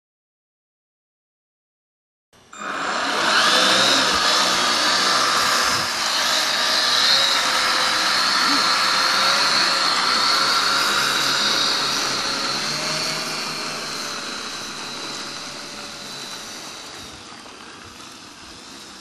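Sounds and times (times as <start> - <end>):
model plane motors whining: 2.5 - 19.0.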